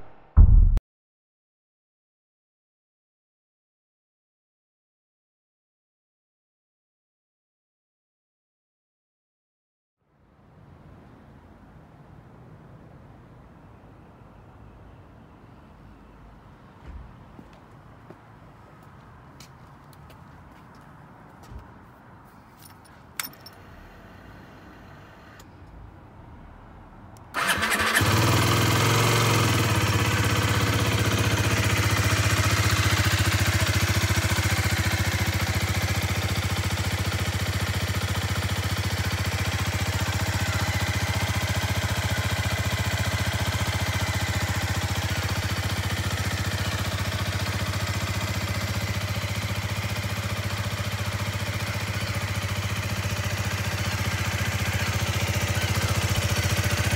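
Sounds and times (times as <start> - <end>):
motorcycle engine starting and idling: 23.2 - 25.9, 27.3 - 56.9.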